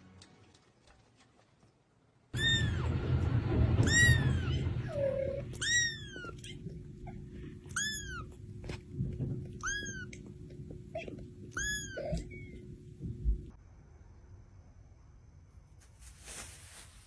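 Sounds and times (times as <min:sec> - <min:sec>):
cat meowing: 0:02.4 - 0:02.9, 0:03.8 - 0:06.7, 0:07.7 - 0:08.4, 0:09.6 - 0:10.2, 0:11.0 - 0:12.6.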